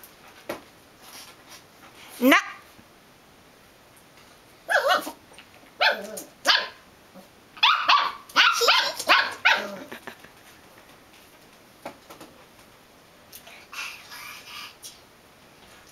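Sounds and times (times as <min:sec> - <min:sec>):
puppy yapping barks: 0:04.7 - 0:05.2, 0:05.8 - 0:06.8, 0:07.6 - 0:09.9.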